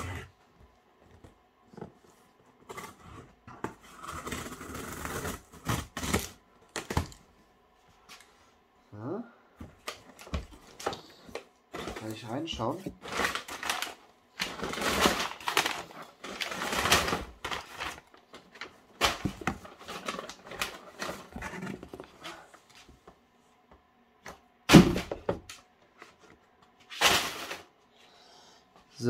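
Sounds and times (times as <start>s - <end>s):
packing paper rustling: 9.9s - 22.5s.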